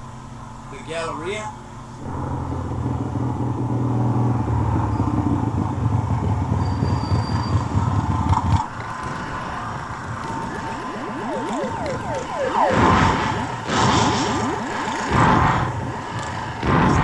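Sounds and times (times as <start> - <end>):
vehicle engine rumbling: 0.0 - 17.0.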